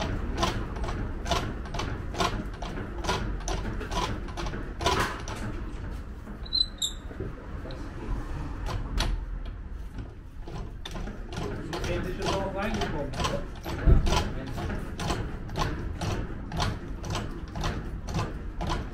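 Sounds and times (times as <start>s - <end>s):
heavy press creaking on casters: 0.0s - 18.9s
short high squeaks: 6.4s - 7.1s.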